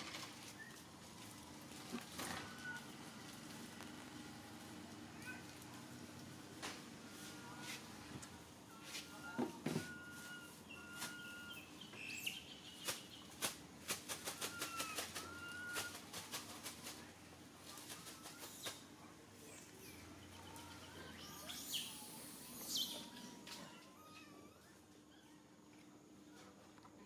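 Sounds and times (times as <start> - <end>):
baby monkey squeaky calls: 19.8 - 25.4.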